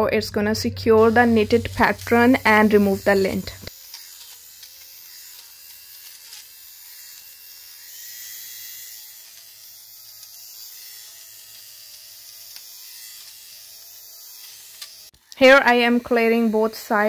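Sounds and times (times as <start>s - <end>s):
lint remover motor whirring: 1.0s - 17.0s.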